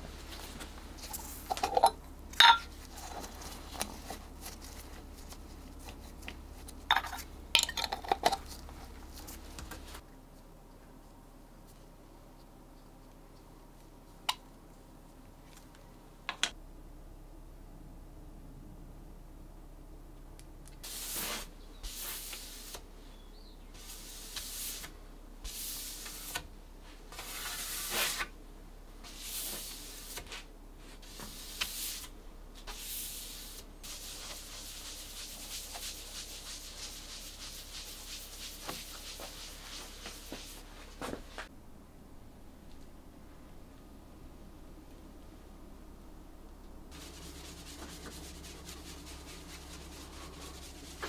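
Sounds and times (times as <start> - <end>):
cloth pad rubbing on wood: 33.8 - 40.8, 46.9 - 51.0.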